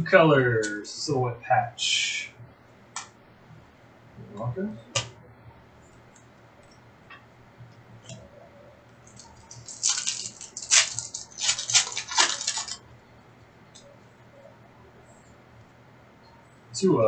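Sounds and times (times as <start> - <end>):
foil wrapper crackling: 9.0 - 12.8.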